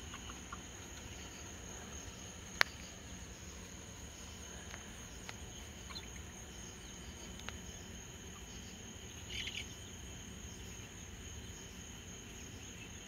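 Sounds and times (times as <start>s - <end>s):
crickets trilling: 0.0s - 13.0s
faint click: 2.6s - 2.9s, 7.3s - 7.6s.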